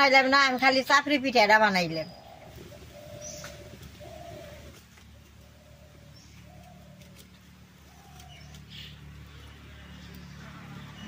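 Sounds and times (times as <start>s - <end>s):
bird calling low notes: 1.8s - 7.2s.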